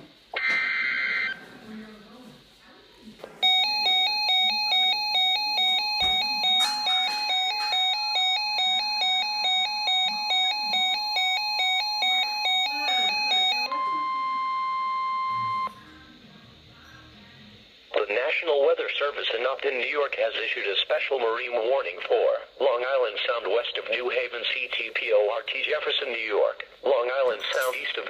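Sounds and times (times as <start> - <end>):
warbling two-tone alarm: 0.4 - 1.4, 3.4 - 15.8
steady warning tone: 3.4 - 17.2.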